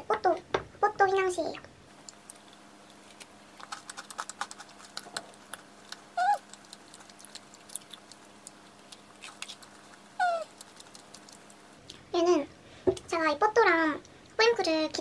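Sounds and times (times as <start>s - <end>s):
faint steady hum: 0.0s - 15.0s
crunchy chewing: 2.0s - 12.0s.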